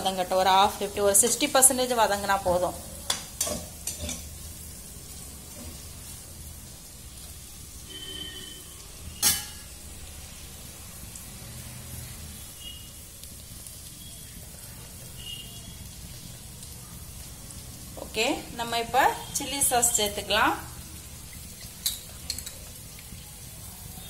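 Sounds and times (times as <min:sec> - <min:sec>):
vegetables sizzling in oil: 0:00.0 - 0:24.0
metal spoon clanking on steel plate: 0:03.1 - 0:04.3, 0:09.2 - 0:09.6, 0:21.6 - 0:22.6.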